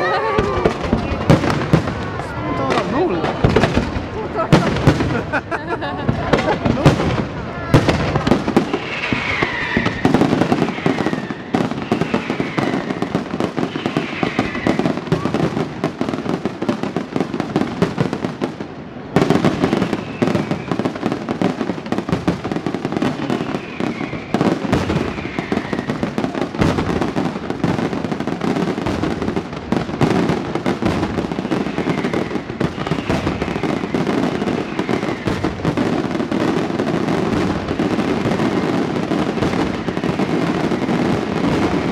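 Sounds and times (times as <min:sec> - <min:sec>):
fireworks bangs: 0:00.0 - 0:41.9
fireworks crackling: 0:00.0 - 0:41.9.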